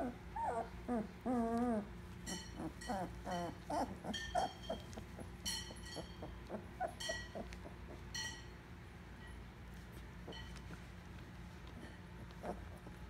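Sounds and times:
puppies whimpering and squealing: 0.0s - 8.1s, 12.3s - 13.0s.

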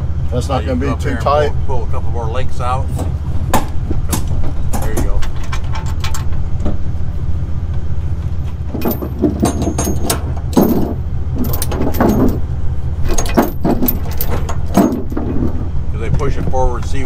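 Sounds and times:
low engine hum: 0.0s - 17.0s
steel chains clinking: 8.5s - 15.8s.

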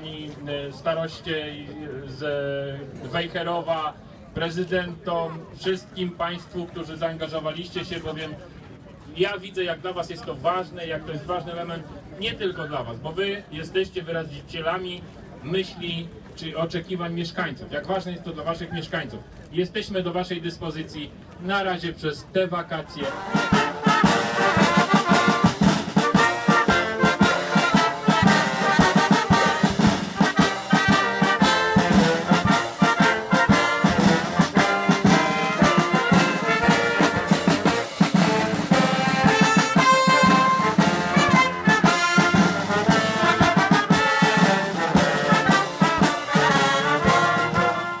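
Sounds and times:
clarinet: 23.0s - 48.0s
saxophone: 23.0s - 48.0s
steady drum beat: 23.0s - 48.0s
trumpets: 23.0s - 48.0s
wind band playing: 23.0s - 48.0s.

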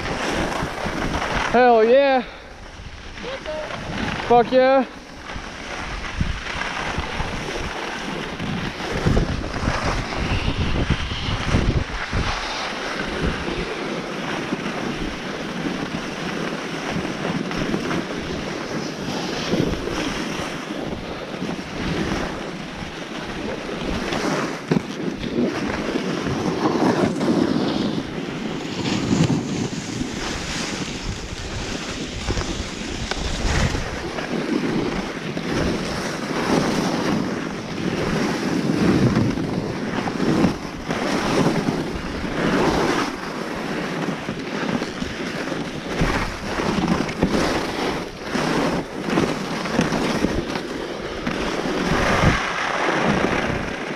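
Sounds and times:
skis scraping over snow: 0.0s - 53.9s
wind buffeting microphone: 0.0s - 53.9s
skis knocking over bumps: 11.5s - 53.9s.

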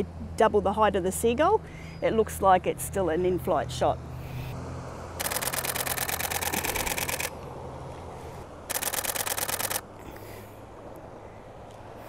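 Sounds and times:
camera shutter clicking rapidly: 5.2s - 7.4s, 8.7s - 9.9s.

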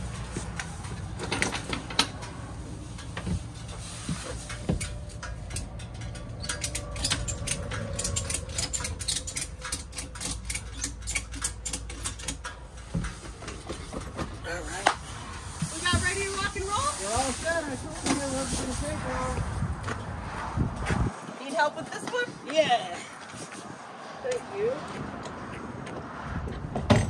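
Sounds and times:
ratchet strap clicking: 4.5s - 12.6s.

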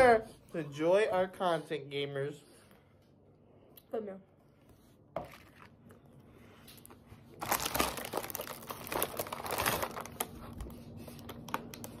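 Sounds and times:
plastic wrapper crinkling: 6.8s - 12.0s.

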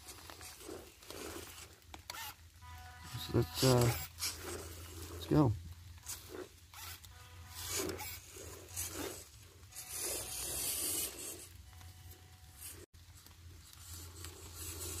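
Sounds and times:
electric motor whine: 0.5s - 5.3s, 6.0s - 12.9s.

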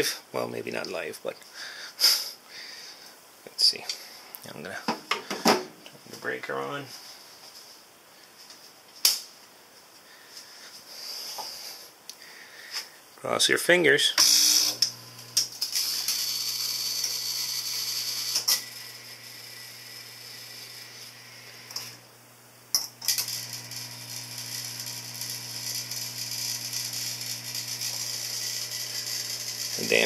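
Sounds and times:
furnace motor hum with hiss: 14.1s - 30.0s.

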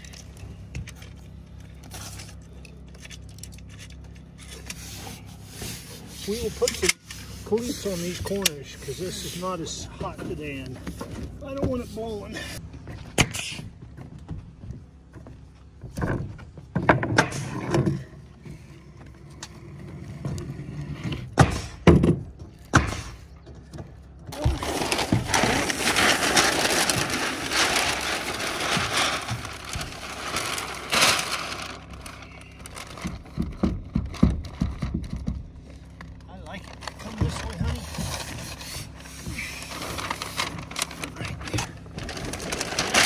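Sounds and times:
roofing membrane crackling rustle: 24.3s - 35.2s, 36.2s - 43.0s
knocks and thumps on roof deck: 32.9s - 35.6s.

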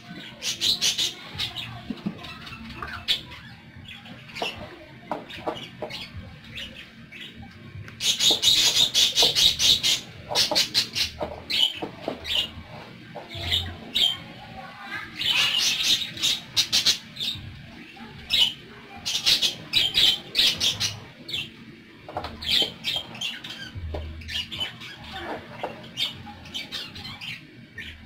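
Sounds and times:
budgerigars chirping and squawking: 0.0s - 28.0s.

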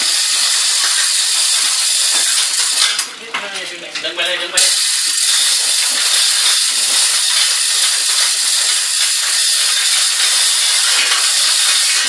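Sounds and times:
chain hoist ratchet clicking: 0.0s - 12.0s
chains rattling: 0.0s - 12.0s.

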